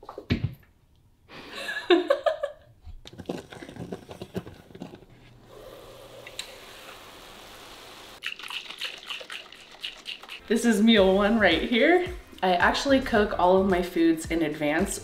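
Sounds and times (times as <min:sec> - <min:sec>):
meat sizzling: 0:05.6 - 0:10.4.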